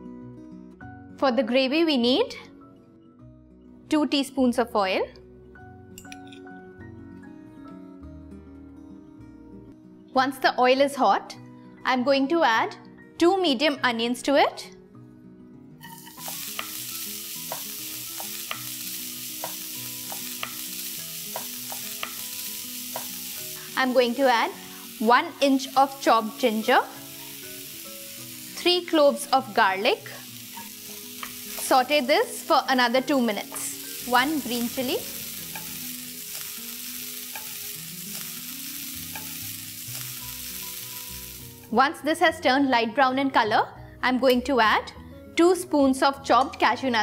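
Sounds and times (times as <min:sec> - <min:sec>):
onions sizzling in hot oil: 0:15.8 - 0:41.8.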